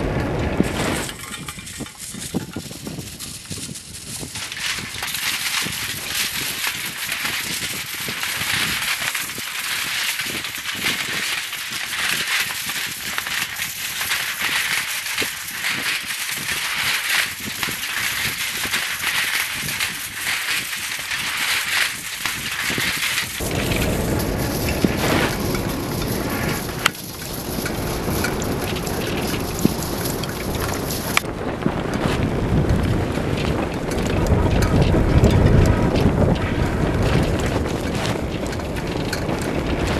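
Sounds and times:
deep rumble: 0.0s - 2.8s, 23.2s - 39.9s
plastic sheeting flapping in wind: 0.0s - 39.9s.

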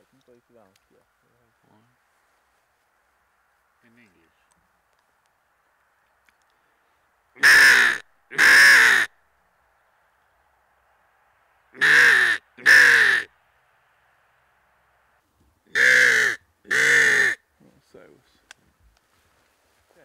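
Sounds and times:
man imitating crow caws: 7.4s - 9.1s, 11.8s - 13.3s, 15.7s - 17.4s.

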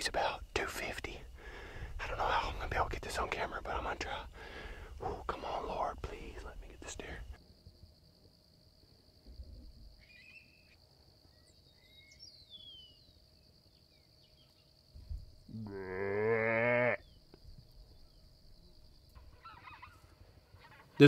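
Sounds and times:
faint bird chirps: 9.4s - 15.6s, 17.0s - 21.0s
long low animal call: 15.5s - 17.1s.

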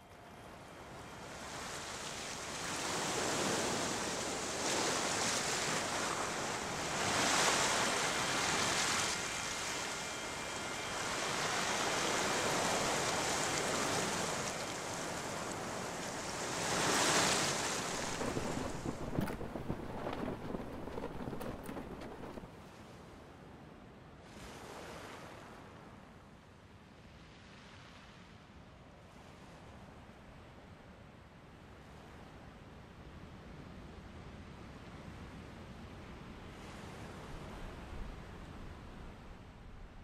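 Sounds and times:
waves washing over pebbles: 2.1s - 22.5s.

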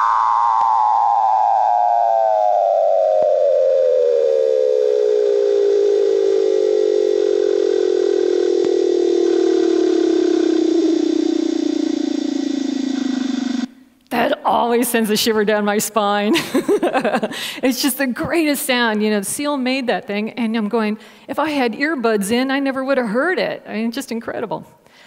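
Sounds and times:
seal underwater trill: 2.5s - 13.9s.

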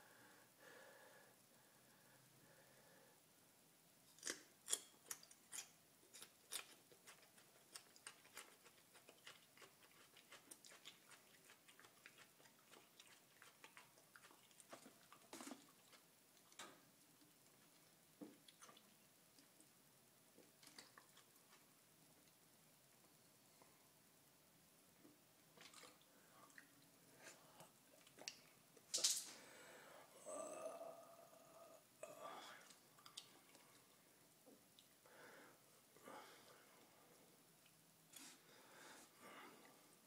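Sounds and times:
garlic being chewed: 4.1s - 19.7s, 32.6s - 33.9s.

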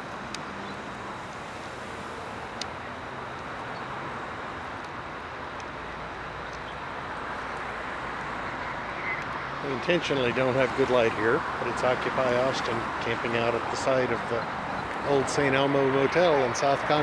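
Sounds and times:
street traffic rushing: 0.0s - 17.0s.

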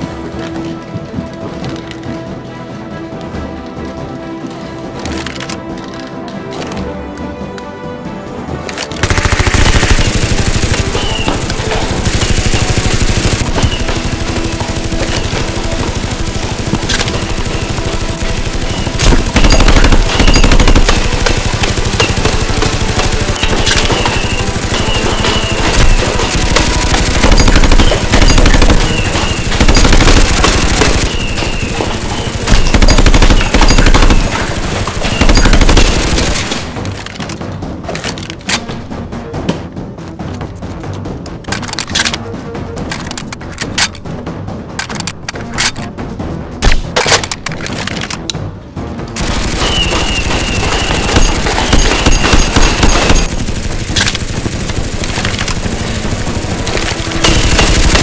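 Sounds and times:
automatic gunfire: 9.0s - 36.8s, 49.2s - 58.0s.

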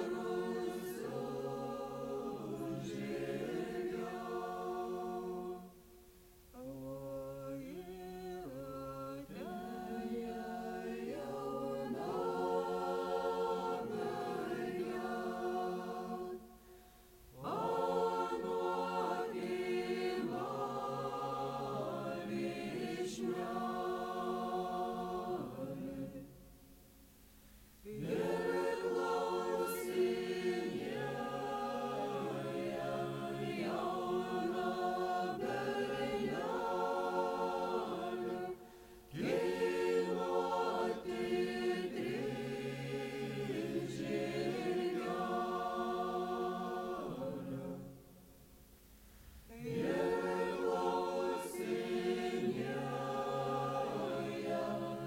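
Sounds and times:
choir singing unaccompanied: 0.0s - 5.9s, 6.6s - 16.6s, 17.3s - 26.5s, 27.8s - 48.2s, 49.5s - 55.0s
breath: 16.6s - 17.2s, 27.3s - 27.8s, 38.6s - 39.1s, 49.0s - 49.5s.

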